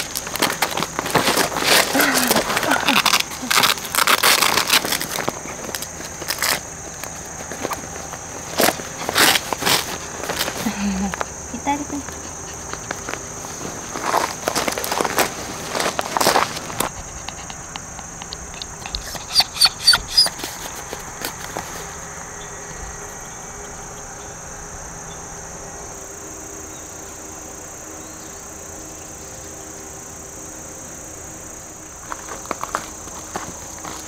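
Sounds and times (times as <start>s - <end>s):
footsteps on gravel: 0.0s - 22.0s, 32.0s - 34.0s
insects chirring: 0.0s - 34.0s.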